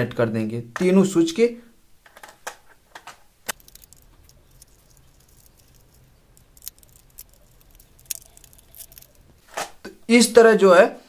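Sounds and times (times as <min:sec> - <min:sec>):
wire ticking and scraping on terminals: 0:03.4 - 0:09.5.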